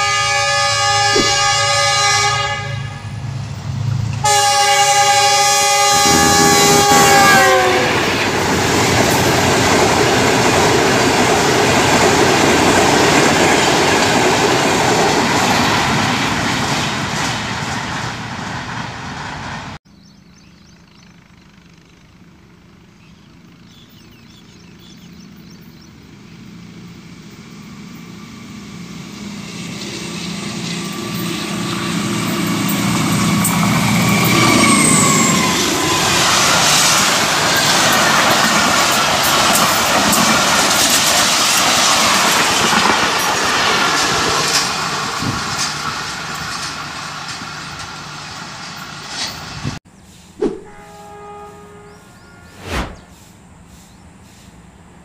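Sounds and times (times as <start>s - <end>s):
diesel locomotive horn: 0.0s - 3.4s, 4.2s - 8.4s, 50.5s - 53.1s
locomotive engine drone: 0.0s - 13.0s, 20.1s - 40.6s
train wheels rumbling on rails: 0.0s - 19.8s, 23.9s - 50.7s.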